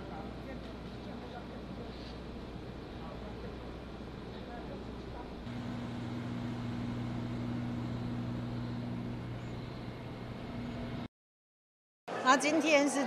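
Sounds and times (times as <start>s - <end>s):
quiet street noise: 0.0s - 11.1s
vehicle engine humming: 5.4s - 11.1s.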